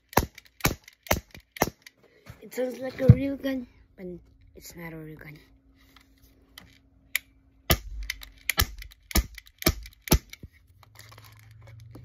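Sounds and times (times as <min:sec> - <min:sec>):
airsoft pistol shots: 0:07.7 - 0:10.4.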